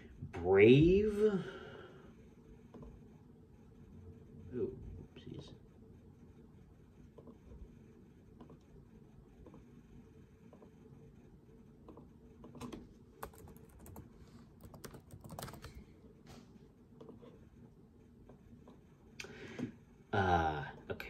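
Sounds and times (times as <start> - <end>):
laptop keyboard typing: 11.9 - 15.9.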